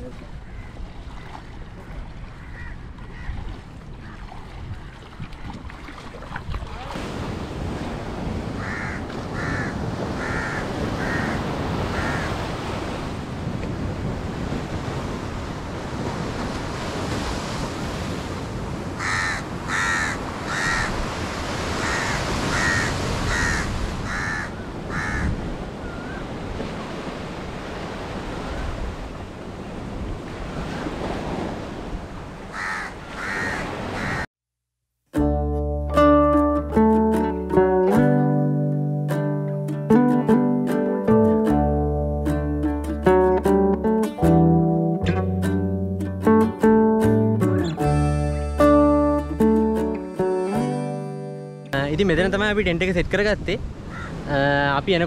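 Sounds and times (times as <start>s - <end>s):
rushing water: 0.0s - 34.3s
wind: 0.0s - 34.3s, 35.4s - 55.0s
birds cawing: 0.4s - 5.1s, 8.6s - 12.6s, 19.0s - 26.3s, 32.5s - 34.3s, 53.9s - 54.3s.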